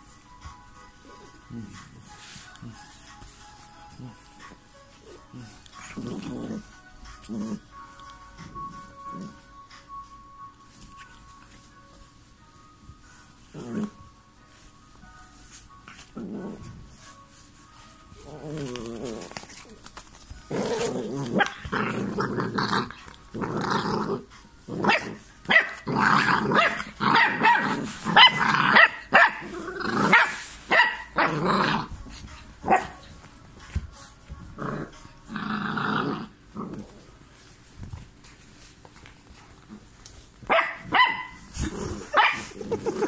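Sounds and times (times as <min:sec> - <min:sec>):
puppies growling: 0:05.0 - 0:07.8, 0:13.5 - 0:14.0, 0:16.0 - 0:16.9, 0:18.2 - 0:30.5, 0:31.1 - 0:32.9, 0:34.4 - 0:37.2, 0:41.4 - 0:43.0.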